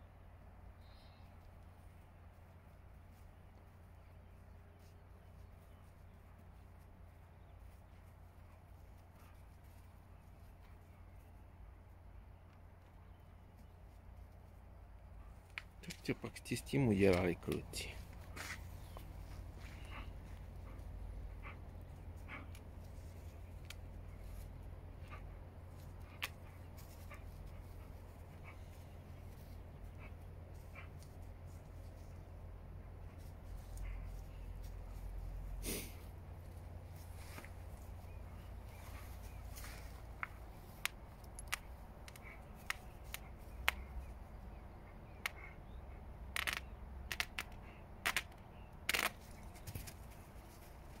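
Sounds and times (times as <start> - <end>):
dogs playing tug-of-war: 1.7 - 15.9, 17.5 - 51.0
dogs tearing toy snaps: 46.3 - 49.6.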